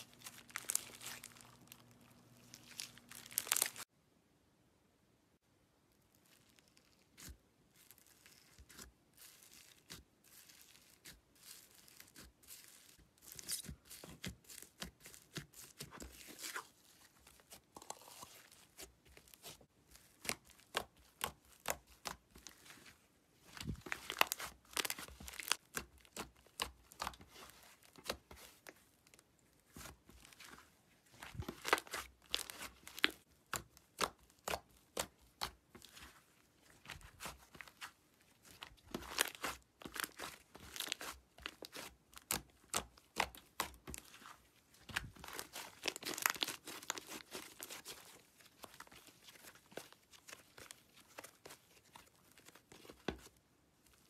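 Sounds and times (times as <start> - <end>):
slime crackling and tearing: 0.0 - 3.9, 23.6 - 30.6, 31.2 - 51.8.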